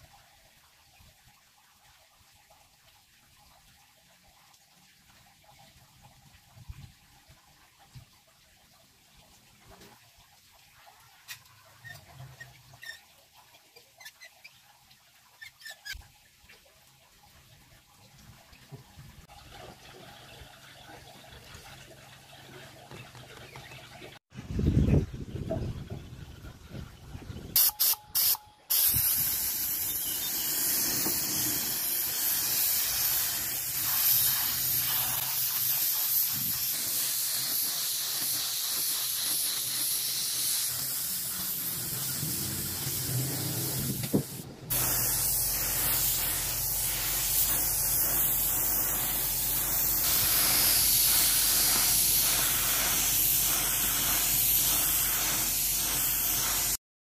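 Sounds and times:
pressurised spray hissing: 0:27.6 - 0:56.8.

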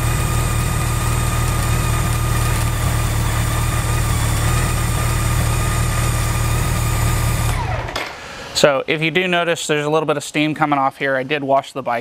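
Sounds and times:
motorcycle engine idling: 0:00.0 - 0:07.8.

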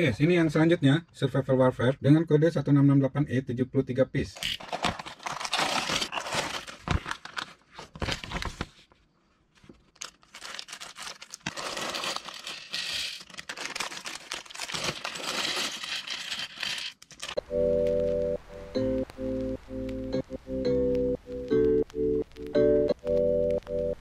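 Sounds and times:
plastic bags crinkling and tearing: 0:04.4 - 0:08.8, 0:09.8 - 0:17.4.

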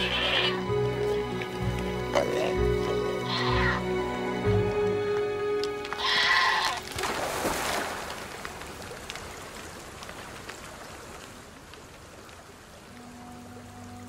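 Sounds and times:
goat bleating: 0:00.0 - 0:00.6, 0:02.1 - 0:03.8, 0:06.0 - 0:06.8.

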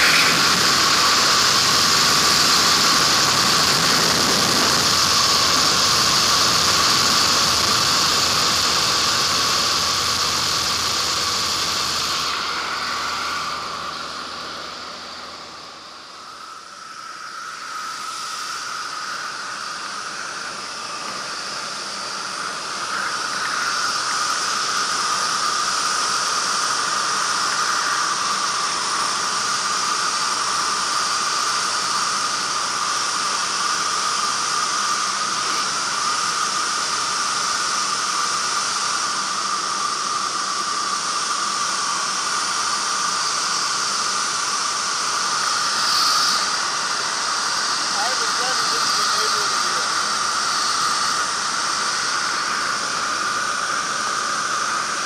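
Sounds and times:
aircraft engine noise: 0:00.0 - 0:55.0.

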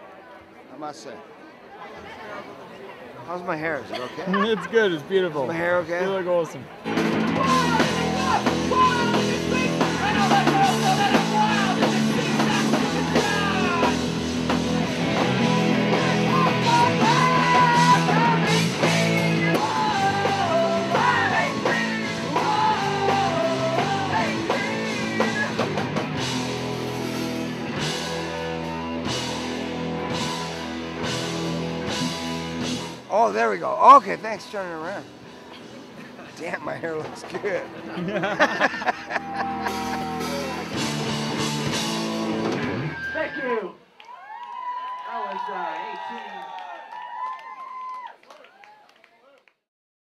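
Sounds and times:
electric guitar: 0:06.9 - 0:33.0, 0:39.2 - 0:43.2
drum kit: 0:06.9 - 0:35.2, 0:38.2 - 0:43.0
person singing: 0:15.9 - 0:18.9, 0:19.5 - 0:25.6.

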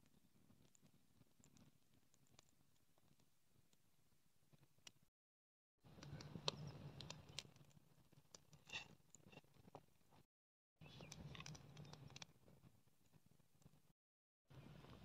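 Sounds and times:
twigs crackling in fire: 0:05.9 - 0:09.4, 0:11.0 - 0:12.4.

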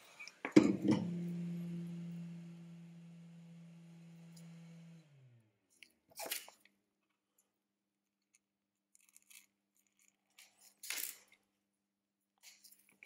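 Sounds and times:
low steady hum: 0:00.2 - 0:05.5
small tools clicking and scraping: 0:05.7 - 0:06.8, 0:08.2 - 0:11.5, 0:12.4 - 0:13.0.

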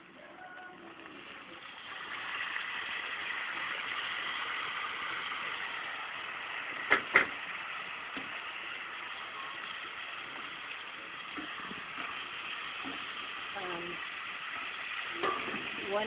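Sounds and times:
food sizzling in a pan: 0:00.0 - 0:16.0
sharp knocks: 0:06.9 - 0:07.4.

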